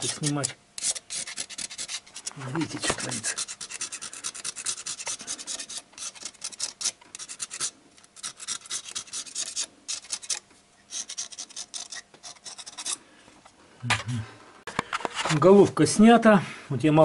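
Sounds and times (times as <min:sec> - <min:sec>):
knife scraping metal: 0:00.0 - 0:13.0.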